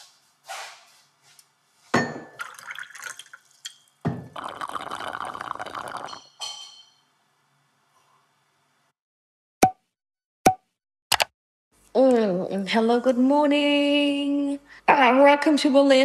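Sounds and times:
glass and crockery clinking: 2.0 - 2.8, 5.8 - 7.1
liquid pouring into glass: 2.3 - 6.3.

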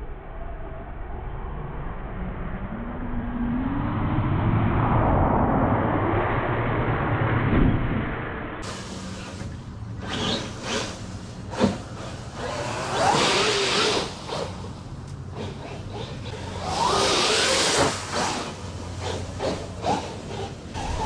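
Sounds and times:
electric motor whining: 8.6 - 21.0
rush of dry leaves: 8.6 - 21.0.

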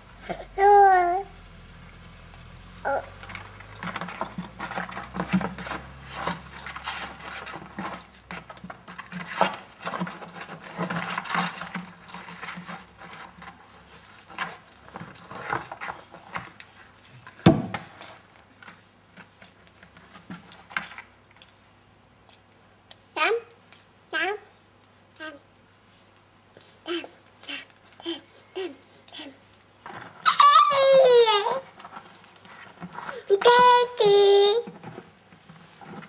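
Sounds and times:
plastic bucket knocking on stony ground: 17.4 - 18.0.

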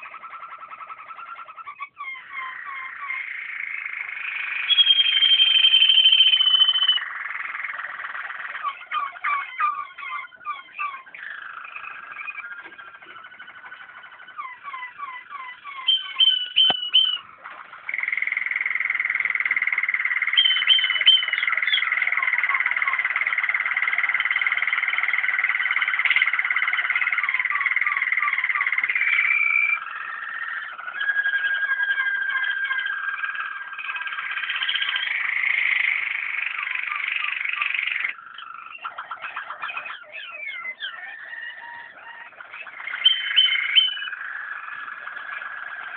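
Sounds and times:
canaries singing: 0.0 - 45.9.

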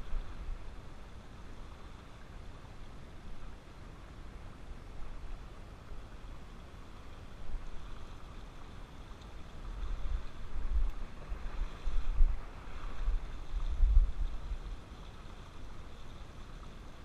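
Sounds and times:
shallow river current rushing: 0.0 - 17.0
wind gusting on microphone: 9.6 - 14.8.

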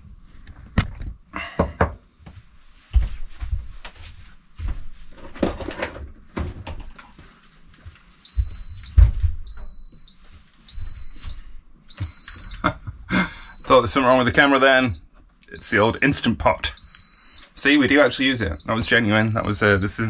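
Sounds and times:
knocks and clatter of handling: 5.1 - 7.2.

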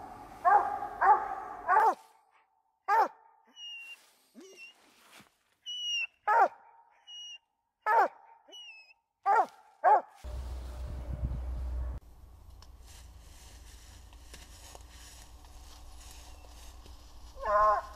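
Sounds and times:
dog barking: 0.4 - 2.1, 2.9 - 3.4, 6.2 - 7.1, 7.8 - 8.6, 9.2 - 10.2, 17.4 - 17.9
low rumble: 10.3 - 14.3.

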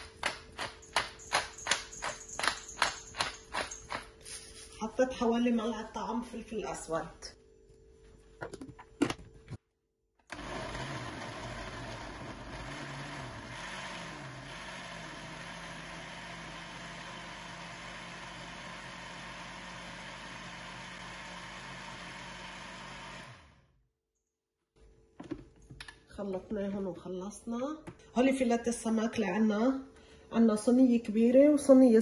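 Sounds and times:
blender running: 10.3 - 23.8.

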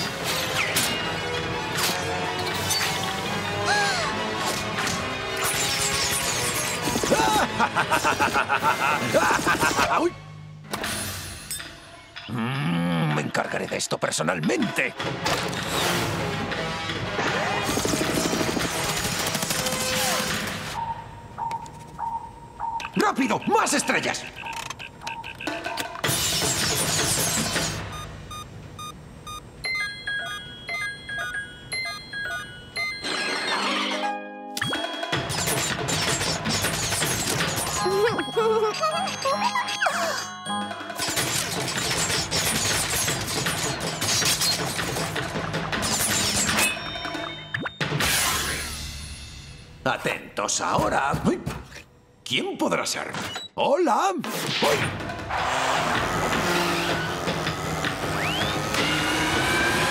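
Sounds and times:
cartoon action music: 0.0 - 10.1, 14.5 - 20.8, 22.9 - 27.8, 33.0 - 49.2, 54.2 - 59.9
rapid cartoon clattering: 16.8 - 20.6, 35.1 - 37.8, 40.8 - 47.2
electronic radar beep: 20.8 - 25.6.

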